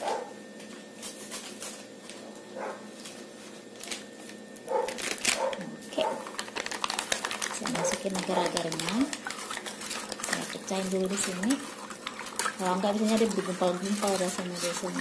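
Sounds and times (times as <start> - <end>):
plastic sachet crinkling: 4.9 - 15.0.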